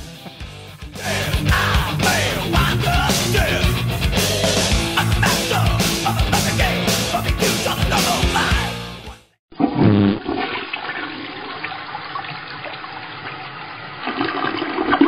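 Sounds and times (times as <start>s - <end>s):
heavy metal music: 0.0s - 9.4s.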